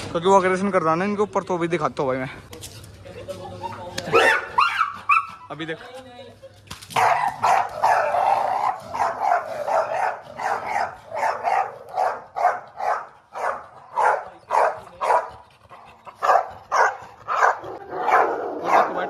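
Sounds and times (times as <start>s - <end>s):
dog barking aggressively: 4.1s - 5.4s, 7.0s - 19.0s.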